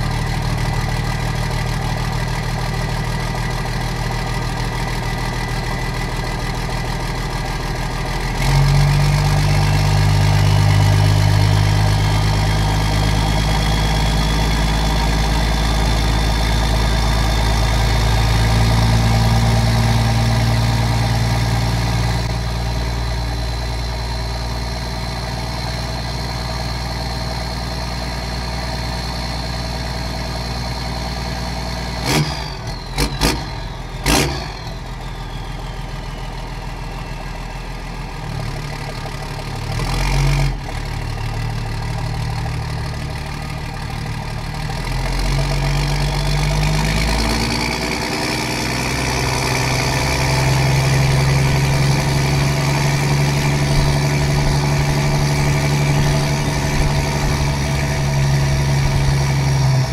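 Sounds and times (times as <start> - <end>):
diesel engine revving: 0.0 - 59.9
high engine whine: 0.0 - 59.9.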